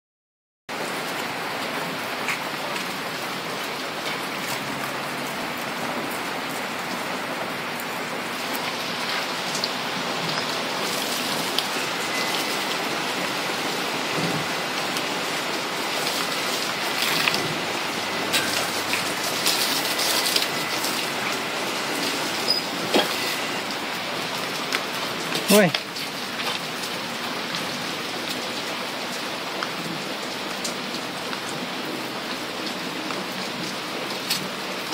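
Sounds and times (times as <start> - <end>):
water spattering on wet grass: 8.3 - 27.6.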